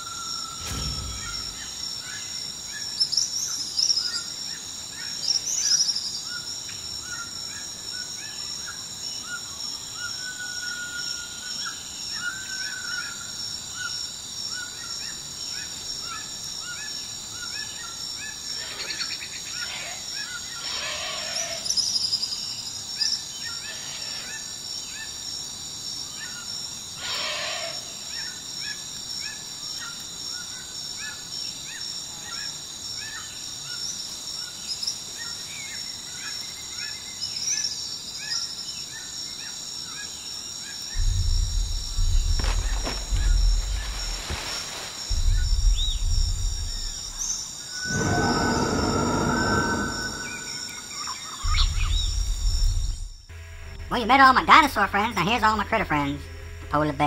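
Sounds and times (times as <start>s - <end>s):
songbirds chirping: 34.5s - 53.3s
high-pitched drone: 47.9s - 51.2s.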